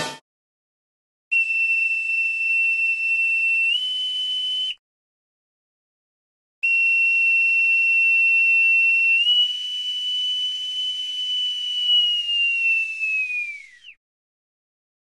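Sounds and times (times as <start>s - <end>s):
high whistled note: 6.6s - 14.0s.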